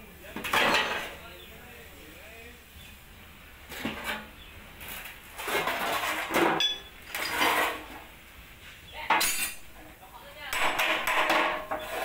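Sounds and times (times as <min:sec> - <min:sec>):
sheet metal scraping and rattling: 0:03.7 - 0:08.1, 0:10.6 - 0:12.0.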